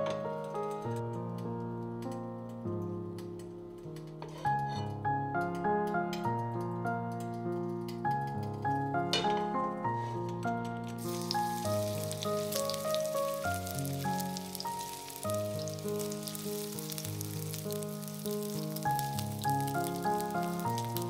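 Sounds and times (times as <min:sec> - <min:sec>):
background music: 0:00.0 - 0:21.0
food sizzling in a pan: 0:11.0 - 0:21.0.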